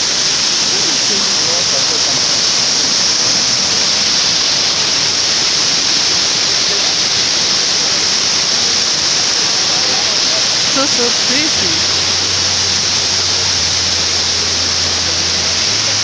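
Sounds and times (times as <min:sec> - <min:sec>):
waterfall rushing: 0:00.0 - 0:16.0.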